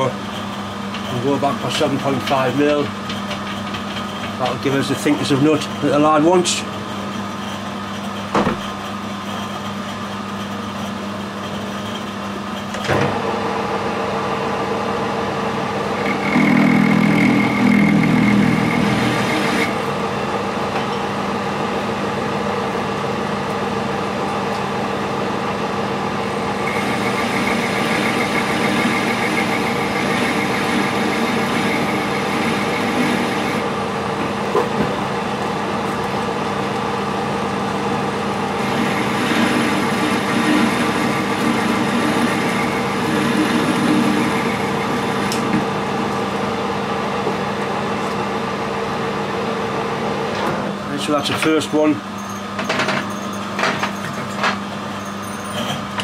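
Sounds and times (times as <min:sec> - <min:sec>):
metal lathe running: 0:00.0 - 0:56.0
parting tool cutting metal whine: 0:16.0 - 0:19.8.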